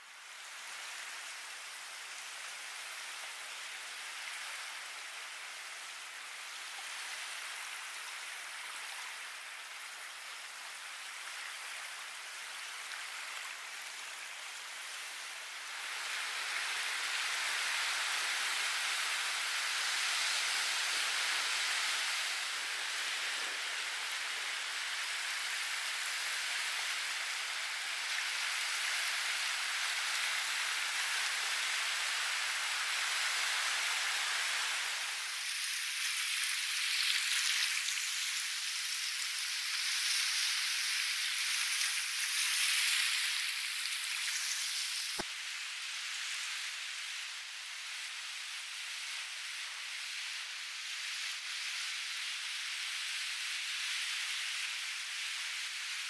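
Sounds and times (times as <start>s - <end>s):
surf washing onto sandy beach: 12.6s - 45.3s.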